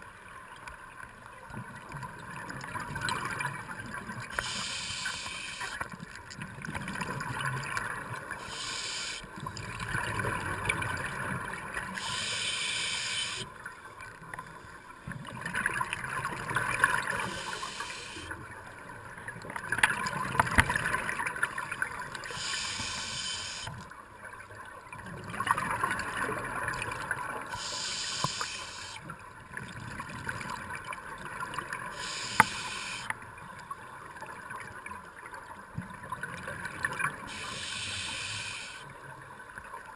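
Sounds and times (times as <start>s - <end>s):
gurgling regulator breathing: 4.3s - 5.8s, 8.4s - 9.3s, 11.9s - 13.5s, 17.0s - 18.4s, 22.2s - 23.8s, 27.5s - 29.0s, 31.9s - 33.1s, 37.3s - 38.8s.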